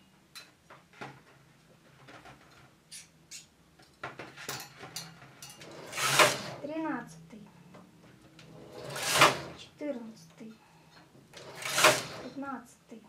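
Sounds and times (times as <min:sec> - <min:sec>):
carriage sliding with loud swish: 0:08.5 - 0:09.6, 0:11.4 - 0:12.4.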